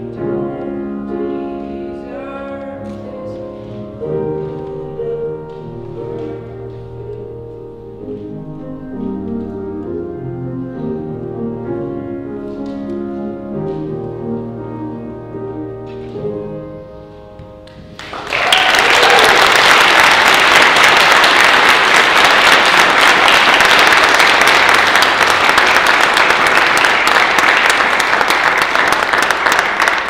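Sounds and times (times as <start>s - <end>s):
audience applause: 18.0s - 30.0s.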